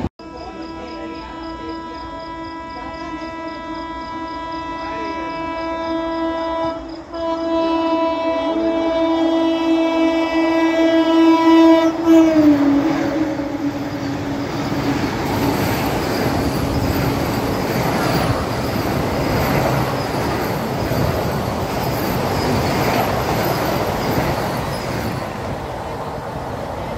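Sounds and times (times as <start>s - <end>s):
train passing at speed: 0.0s - 26.9s.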